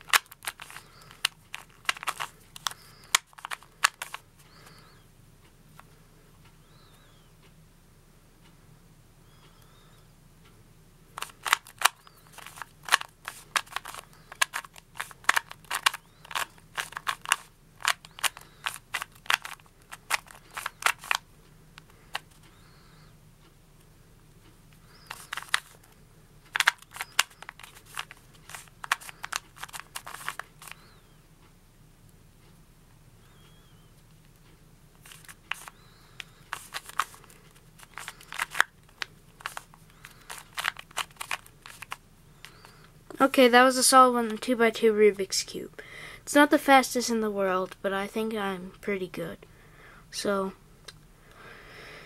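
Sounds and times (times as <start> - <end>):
plastic puzzle cube clicking: 0.0 - 4.8, 11.2 - 21.2, 21.8 - 22.6, 24.8 - 25.9, 26.5 - 30.9, 35.0 - 42.9.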